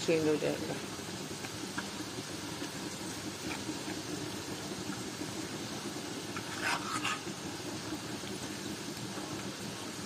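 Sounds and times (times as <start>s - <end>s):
onions sizzling in oil: 0.0s - 10.0s
metal spoon scraping pan: 6.3s - 7.3s.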